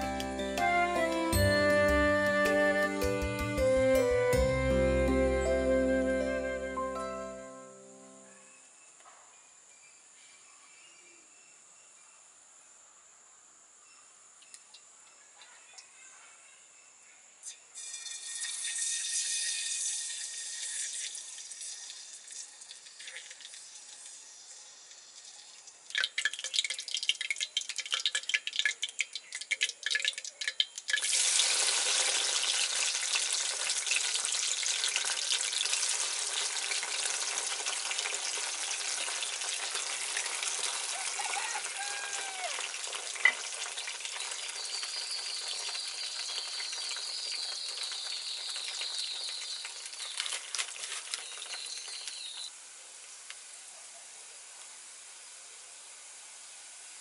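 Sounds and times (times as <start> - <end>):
food sizzling in oil: 17.4 - 53.6
hot oil crackling pops: 17.8 - 40.9, 42.6 - 53.4.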